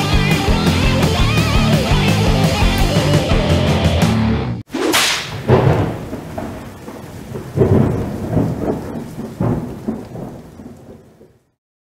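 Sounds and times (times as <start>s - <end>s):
deep rumbling booms: 5.3s - 11.1s.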